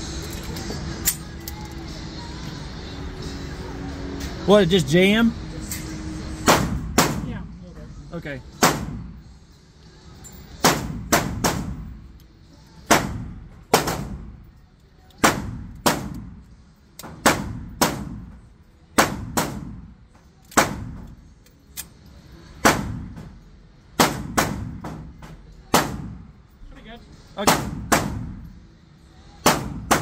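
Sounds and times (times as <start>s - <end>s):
gunshots echoing indoors: 6.4s - 7.4s, 8.6s - 9.1s, 10.6s - 11.9s, 12.8s - 14.4s, 15.1s - 16.4s, 17.0s - 18.4s, 19.0s - 21.2s, 22.6s - 23.2s, 24.0s - 26.2s, 27.4s - 28.5s, 29.4s - 30.0s.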